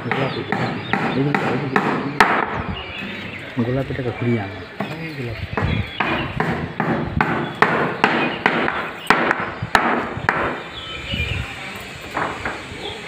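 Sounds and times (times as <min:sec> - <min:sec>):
sharp knocks: 0:00.0 - 0:02.6, 0:05.6 - 0:10.7.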